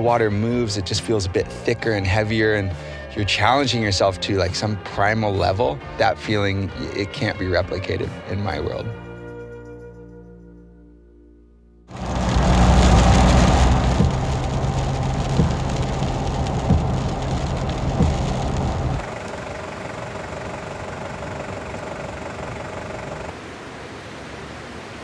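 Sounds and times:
rain hitting car windshield: 11.9s - 23.4s
engine and road hum: 11.9s - 25.0s
road and wind noise: 11.9s - 25.0s
soft thump: 15.2s - 15.8s, 16.5s - 19.0s.

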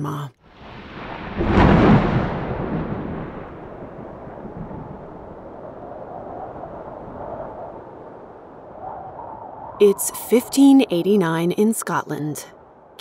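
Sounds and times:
thunder clap: 0.5s - 8.6s
stormy rumble and hiss: 0.5s - 9.9s.

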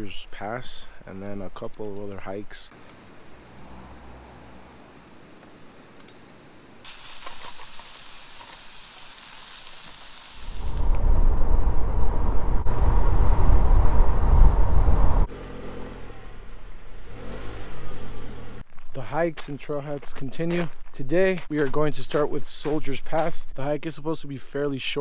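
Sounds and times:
car road and wind rumble: 3.0s - 5.3s, 10.6s - 18.7s
food sizzling in a frying pan: 6.8s - 11.0s
engine hum: 10.8s - 18.7s.

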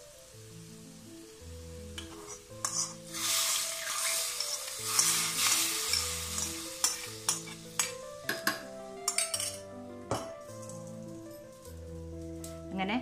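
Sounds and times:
hot oil sizzling: 0.0s - 12.7s.

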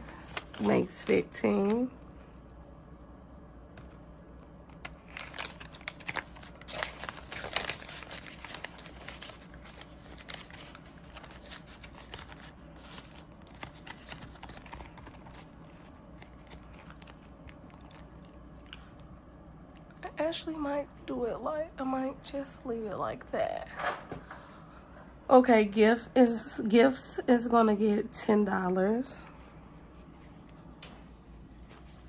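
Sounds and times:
plastic pouch and banknotes crinkling: 0.0s - 1.9s, 4.7s - 18.7s.

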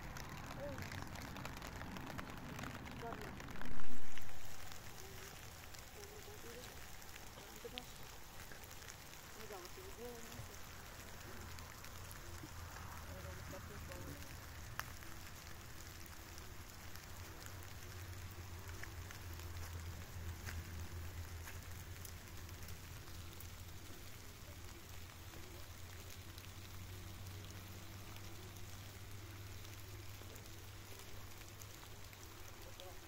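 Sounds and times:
steady low rumble: 0.0s - 25.2s
light rain pattering on leaves: 0.0s - 33.0s
separate water drops: 0.0s - 33.0s.

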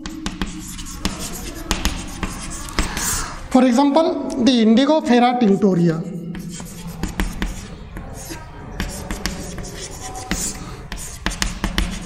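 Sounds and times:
chalk writing on blackboard: 0.0s - 3.6s, 6.2s - 12.0s.

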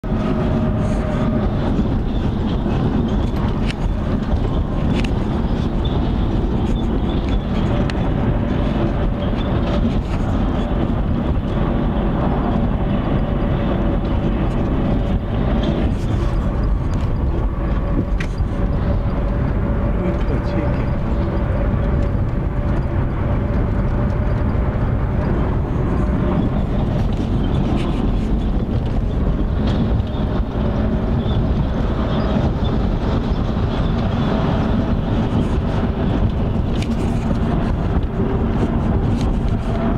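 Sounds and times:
engine and tyre rumble: 0.0s - 39.9s.

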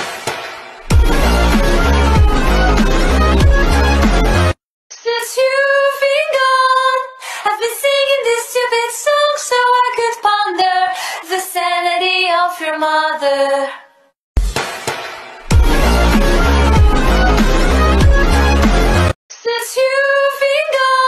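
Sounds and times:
music with low bass: 0.9s - 4.6s, 15.5s - 19.1s
woman singing unaccompanied: 5.0s - 13.9s, 19.4s - 21.0s.

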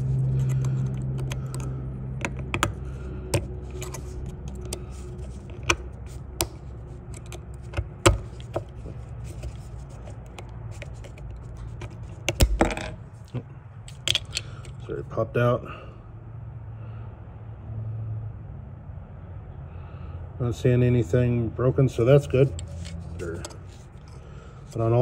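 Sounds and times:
low steady hum: 0.0s - 17.6s, 19.1s - 25.0s
plastic switch parts clicking: 0.4s - 4.8s.

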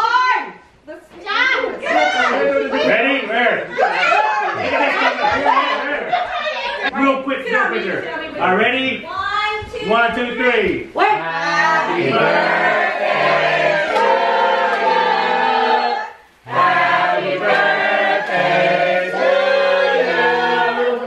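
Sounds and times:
choir singing held chords: 11.2s - 21.0s.

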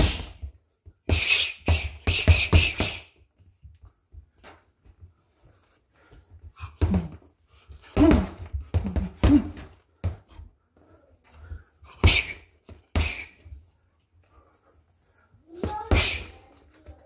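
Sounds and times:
person grunting: 8.0s - 9.7s.

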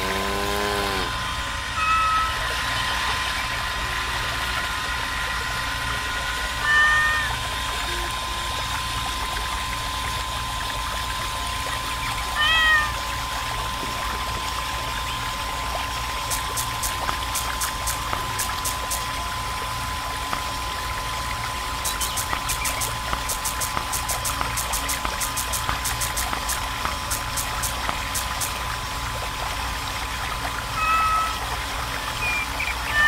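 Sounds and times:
water pouring into pond: 0.0s - 33.0s
water pump whining: 0.0s - 33.0s
cat meowing: 1.8s - 2.4s, 6.6s - 7.4s, 12.4s - 13.0s, 30.8s - 31.4s
faint rapid ticking: 16.2s - 19.3s, 21.6s - 28.7s.

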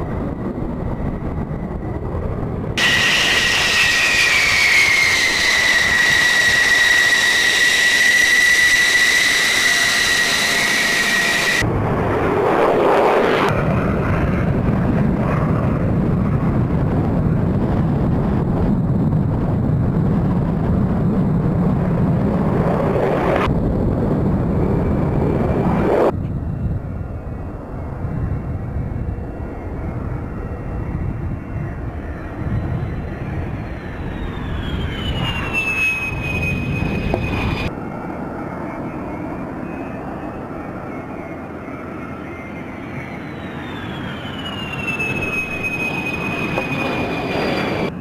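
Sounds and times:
jet taking off roar: 0.0s - 48.0s
jet turbine whine: 0.0s - 48.0s.

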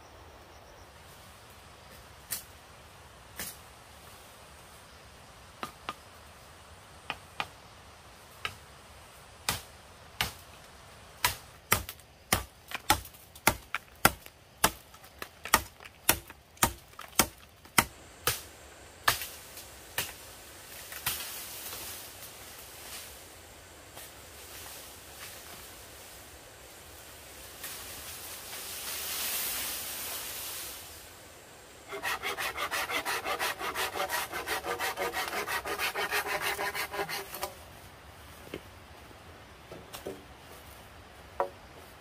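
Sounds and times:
leaves rustling: 0.9s - 5.5s, 7.6s - 42.0s
machete chopping bamboo: 9.4s - 10.4s, 11.2s - 20.2s.

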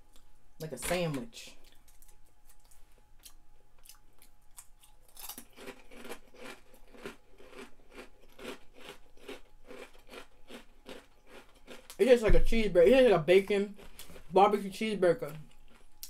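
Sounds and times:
person chewing crunchy food: 1.6s - 12.2s, 13.7s - 14.4s, 15.3s - 16.0s.

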